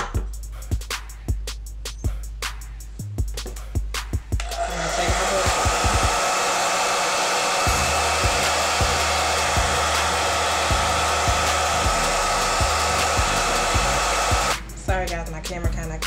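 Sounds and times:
background music beat: 0:00.0 - 0:16.0
hair dryer blowing: 0:04.4 - 0:14.6.

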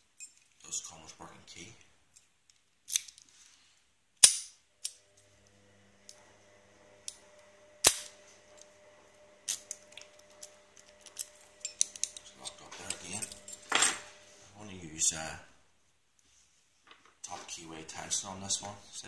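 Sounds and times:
padlock and key clicking: 0:09.4 - 0:13.9.

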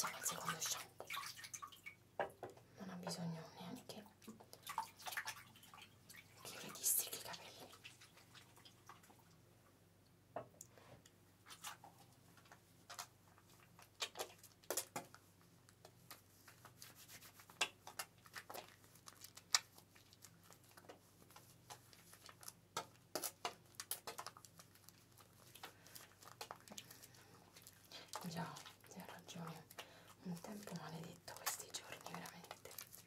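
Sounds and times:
hands squishing wet hair: 0:00.0 - 0:02.0, 0:04.2 - 0:06.7, 0:11.4 - 0:33.0.

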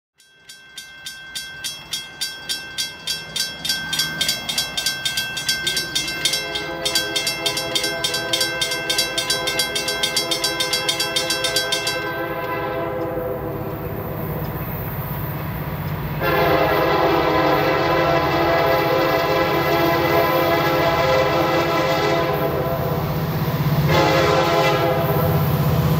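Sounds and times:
railroad crossing bell ringing: 0:00.2 - 0:25.9
train horn: 0:05.7 - 0:14.5, 0:16.1 - 0:25.8.

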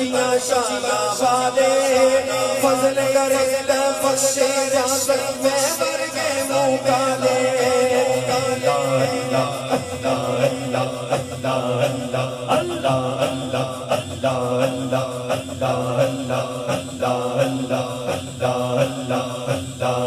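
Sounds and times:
man chanting a hymn: 0:00.0 - 0:19.0
steady low drone: 0:06.9 - 0:20.0.

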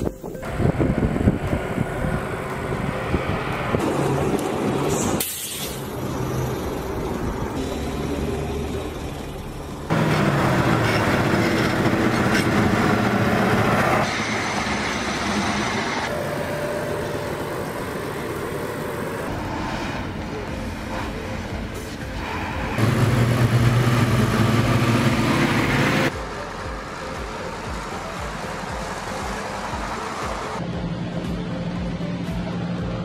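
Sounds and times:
heavy military vehicle engines: 0:00.0 - 0:33.0.

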